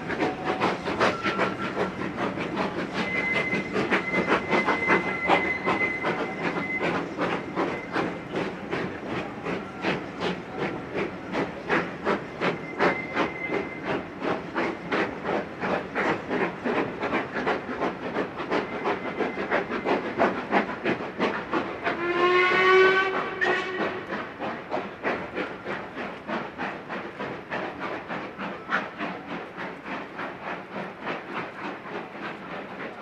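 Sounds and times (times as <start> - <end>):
steam whistle: 0.0 - 2.1, 2.8 - 8.1, 21.9 - 24.1
steam locomotive exhaust beats: 0.0 - 33.0.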